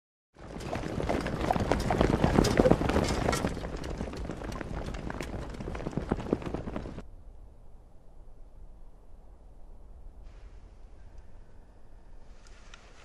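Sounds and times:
soldiers' boots marching: 0.4 - 7.0.

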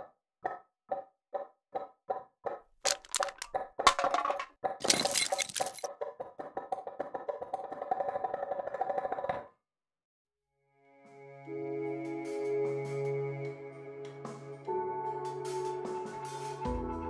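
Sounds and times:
music with held notes: 10.9 - 17.0.

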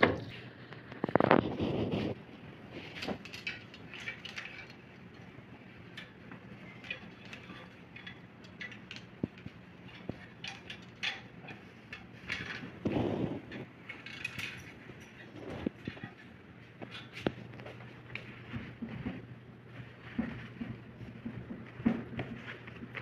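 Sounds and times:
clothes hangers clicking on rail: 2.8 - 17.4.

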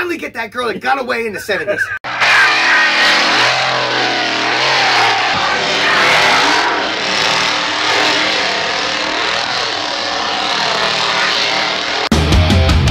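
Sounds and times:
chainsaw running at high revs: 2.1 - 12.1.

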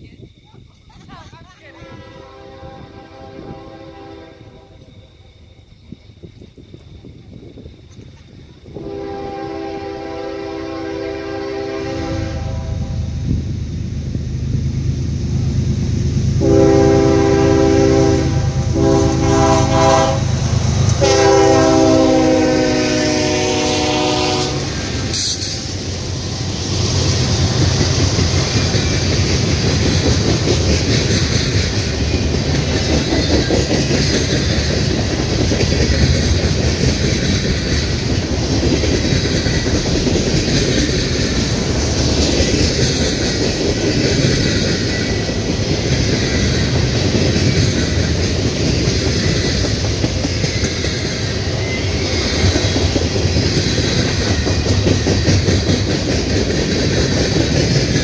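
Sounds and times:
train wheels rumbling on rails: 0.0 - 58.0
locomotive air horn blasts: 1.7 - 4.8, 8.8 - 13.1, 16.4 - 20.4, 21.0 - 24.9.

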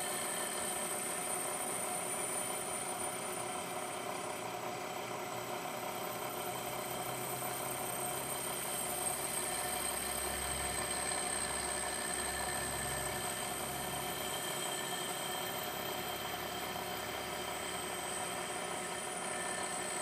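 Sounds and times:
milling machine cutting metal: 6.4 - 20.0.

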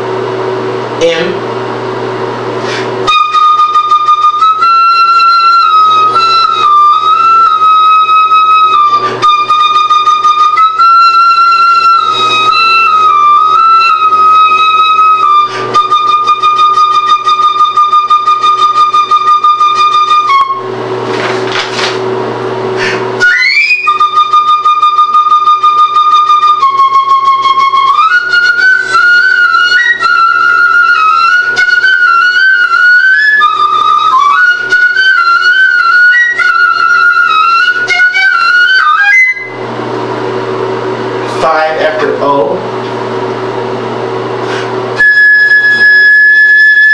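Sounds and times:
solo flute playing: 3.0 - 21.0, 22.8 - 39.8, 44.9 - 46.9.

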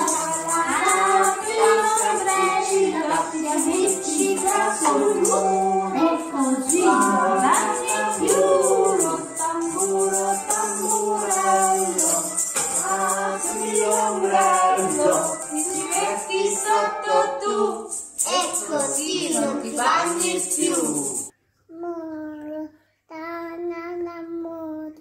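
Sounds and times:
adults and child singing: 0.0 - 21.3
hand shakers rattling: 0.0 - 21.3.

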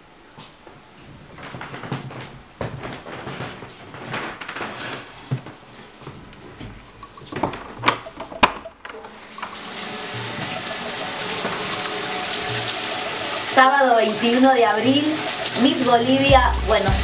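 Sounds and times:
shower spray running: 9.0 - 17.0.

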